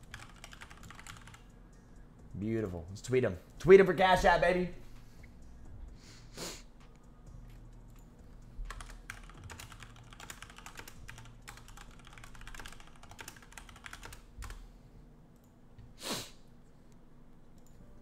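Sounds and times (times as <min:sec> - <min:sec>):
keyboard typing: 0:00.0 - 0:01.6, 0:07.7 - 0:14.6.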